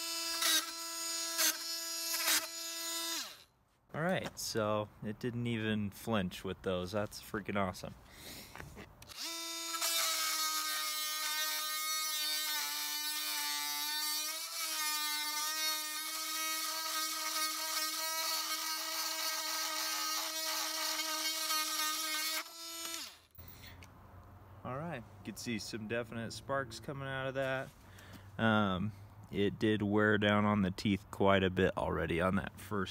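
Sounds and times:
blade rasping on metal screw: 0.0s - 3.4s, 9.0s - 23.3s
oscillating multi-tool buzzing: 0.0s - 3.6s, 9.0s - 23.5s.

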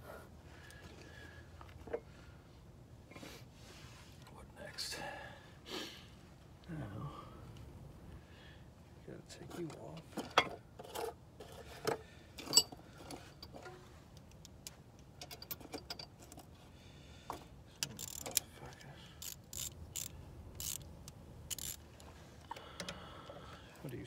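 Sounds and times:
metal tools clicking and clinking: 11.8s - 13.7s, 15.1s - 16.5s, 17.8s - 20.9s, 21.5s - 21.9s.

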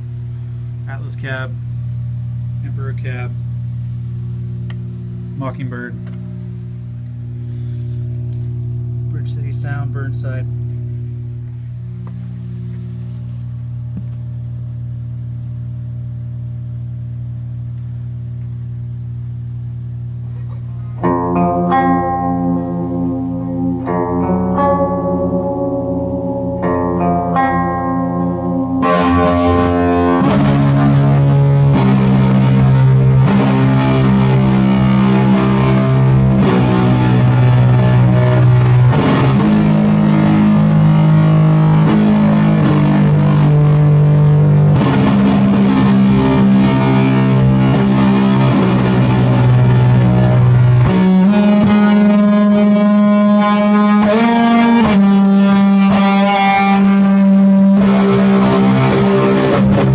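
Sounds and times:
distorted electric guitar: 20.2s - 59.9s.

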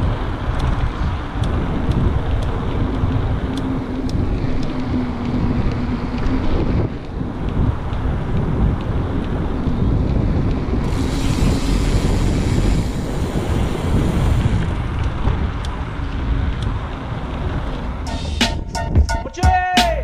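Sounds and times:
wind buffeting microphone: 0.0s - 19.2s
music with sharp beats: 18.0s - 20.0s.

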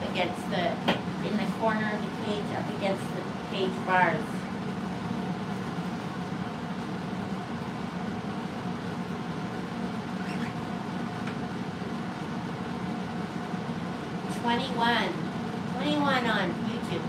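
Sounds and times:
fan hum: 0.0s - 17.0s.

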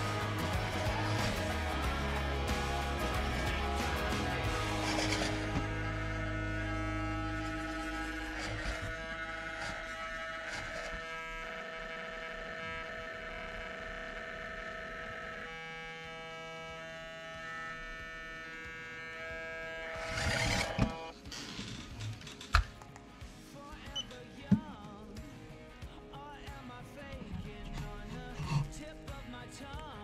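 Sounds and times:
slow synth chords: 0.0s - 10.1s.

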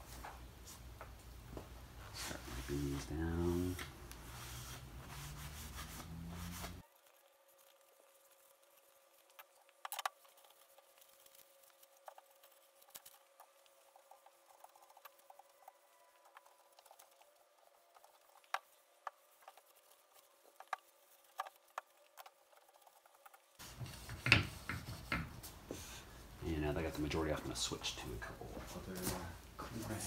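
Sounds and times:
cloth rag rubbing wood: 2.2s - 21.7s
boards clicking and tapping: 20.6s - 25.4s.

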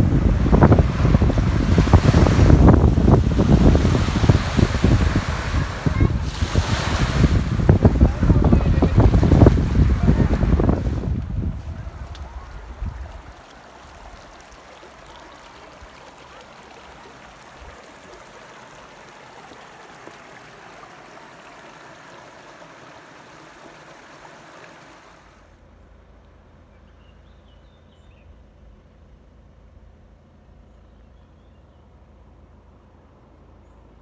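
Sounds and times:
stream running over stones: 0.0s - 25.6s.

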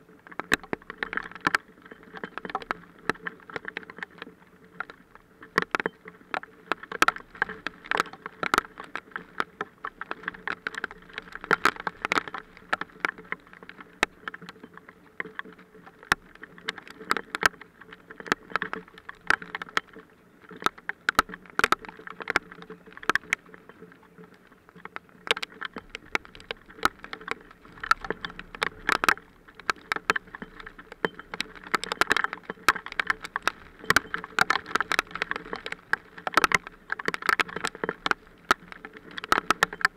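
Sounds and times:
hailstones striking: 25.3s - 39.9s.

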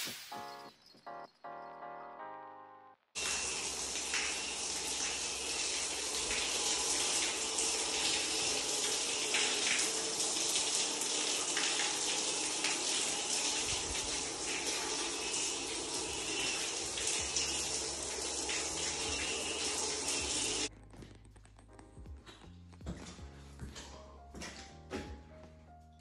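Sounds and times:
water pouring and splashing on floor: 3.2s - 20.7s.

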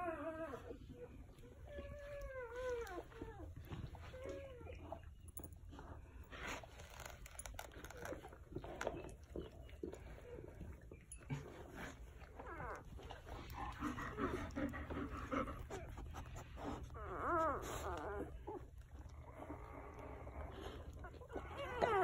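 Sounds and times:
puppies squeaking and whimpering: 0.0s - 6.0s, 6.8s - 22.0s
soft clicks of puppies shifting: 6.6s - 22.0s.

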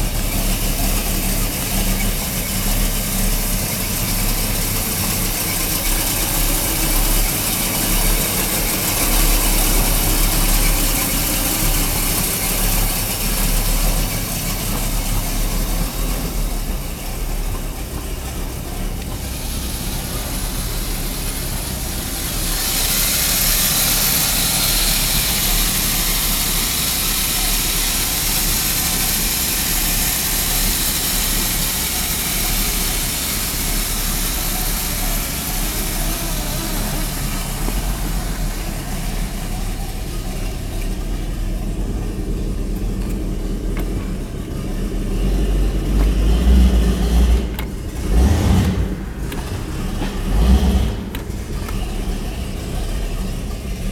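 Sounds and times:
hiss: 0.0s - 16.1s, 19.0s - 40.5s
boat engine idling: 0.0s - 53.9s.

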